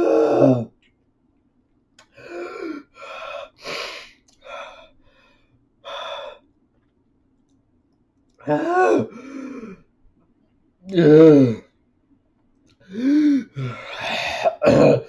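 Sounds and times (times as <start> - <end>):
man groaning: 8.4 - 9.2, 10.9 - 11.6
man gasping breaths: 12.8 - 14.6.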